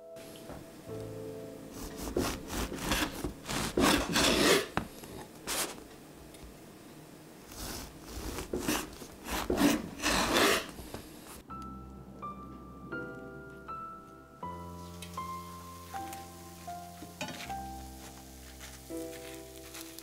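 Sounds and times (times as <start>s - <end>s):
bread knife sawing through loaf: 1.7s - 4.9s, 5.5s - 5.8s, 7.5s - 10.9s.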